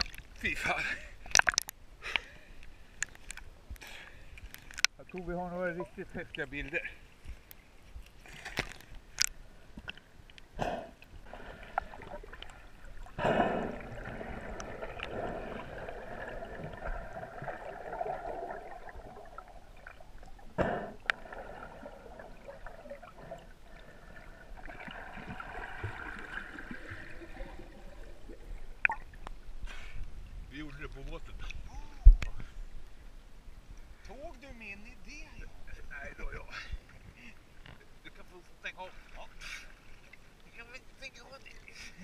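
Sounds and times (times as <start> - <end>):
muffled underwater water sloshing: 4.1 - 33.2.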